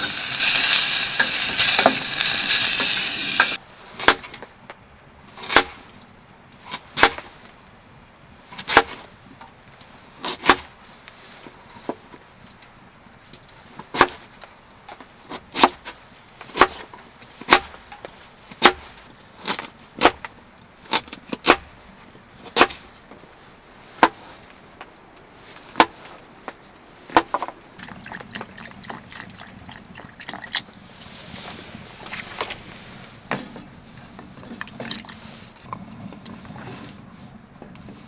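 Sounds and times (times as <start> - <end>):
broth pouring into metal pot: 27.8 - 31.0.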